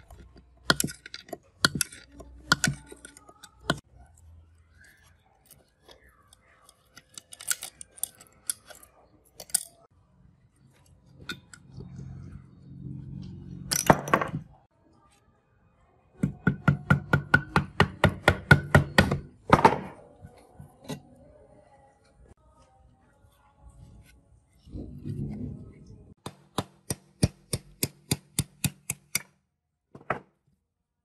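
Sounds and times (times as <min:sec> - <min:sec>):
metal parts scraping: 0:04.8 - 0:09.9.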